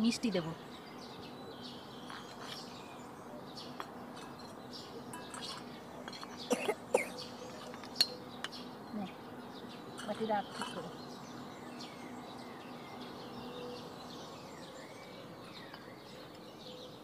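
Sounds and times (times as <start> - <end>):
birds chirping faintly: 0.0 - 17.0
ladle clinking against bowls: 3.8 - 8.2.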